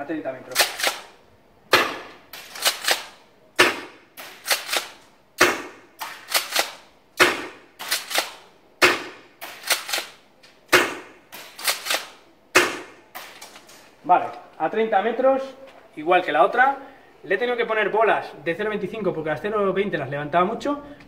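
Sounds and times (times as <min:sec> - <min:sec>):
airsoft shotgun shots: 0:00.5 - 0:01.1, 0:01.7 - 0:13.4.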